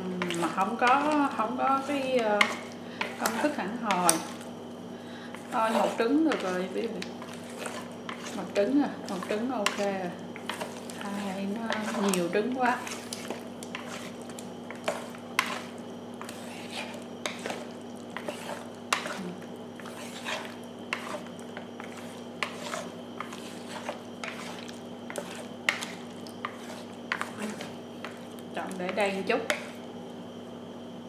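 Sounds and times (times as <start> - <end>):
chopsticks stirring batter: 0.0 - 4.6, 5.2 - 30.0.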